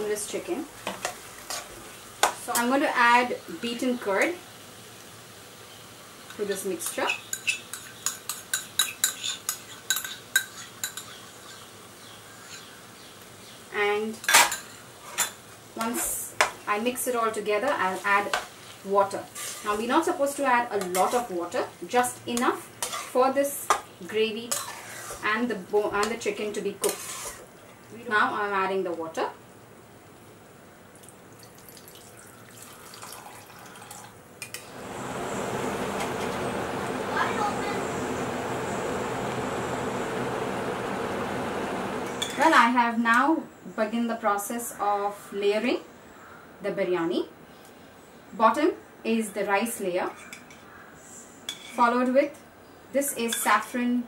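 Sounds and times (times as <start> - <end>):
water pouring into a pan: 31.0 - 34.2.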